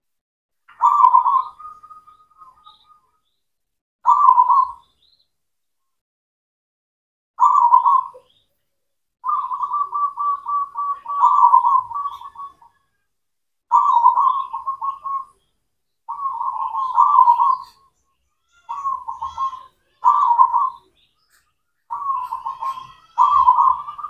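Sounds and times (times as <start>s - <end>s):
dove cooing: 0.7s - 3.0s, 4.1s - 4.8s, 7.4s - 8.4s, 9.2s - 12.9s, 13.7s - 15.4s, 16.1s - 17.9s, 18.6s - 21.0s, 21.9s - 24.0s.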